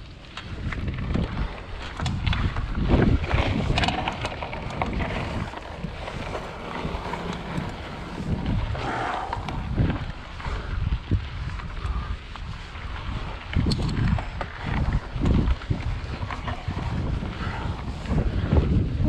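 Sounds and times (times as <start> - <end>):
wind rumbling on microphone: 0.0 - 19.0
bike frame rattling and knocking: 0.8 - 8.6.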